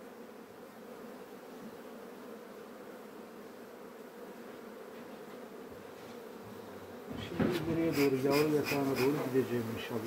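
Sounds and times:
bees buzzing: 0:00.0 - 0:10.0.

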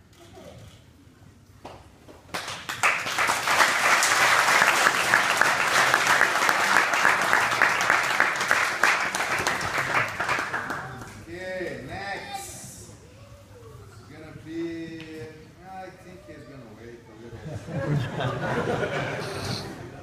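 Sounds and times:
audience clapping: 0:01.6 - 0:11.2.

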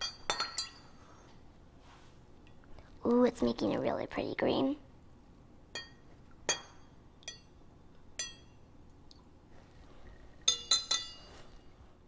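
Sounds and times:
knife clinking against glass cup: 0:10.5 - 0:11.3.

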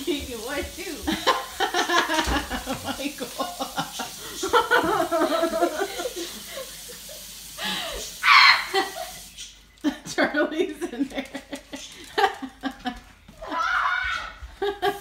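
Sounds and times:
people chatting: 0:00.0 - 0:06.1, 0:09.9 - 0:11.6
people laughing: 0:01.1 - 0:07.2, 0:09.8 - 0:13.6, 0:14.4 - 0:15.0.

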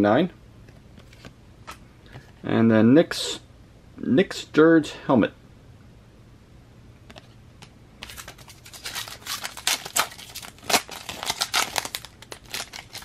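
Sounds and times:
foil wrapper crinkling: 0:08.0 - 0:13.0.

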